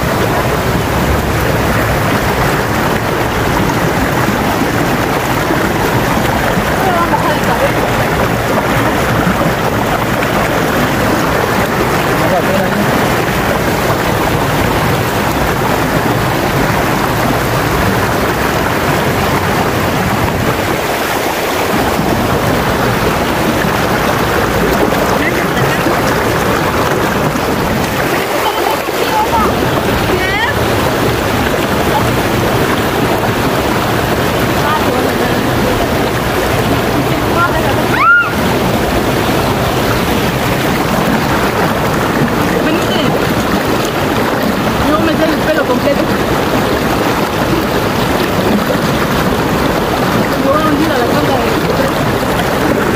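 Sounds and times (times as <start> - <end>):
river rushing over stones: 0.0 - 52.9
water splashing: 0.0 - 52.9.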